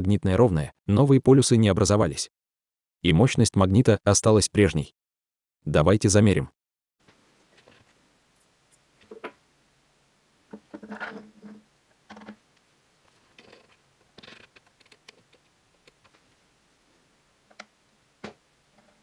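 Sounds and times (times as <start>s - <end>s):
magnet clicks and taps: 13.4s - 16.2s.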